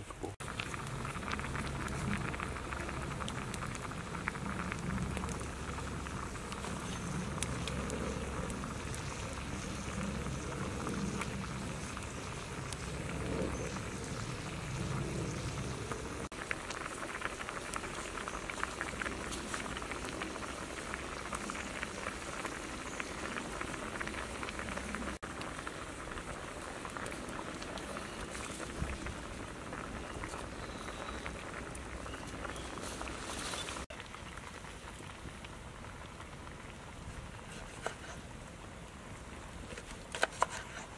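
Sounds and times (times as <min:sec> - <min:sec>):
water boiling hard: 0:00.0 - 0:40.9
wood fire crackling: 0:00.0 - 0:40.9
low rumble: 0:00.4 - 0:17.5.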